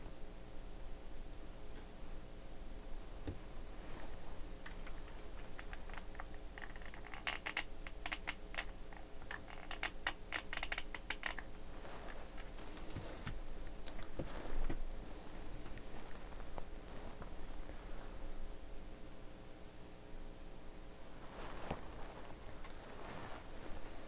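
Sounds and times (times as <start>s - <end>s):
glue gun clicks and taps: 5.6s - 11.4s.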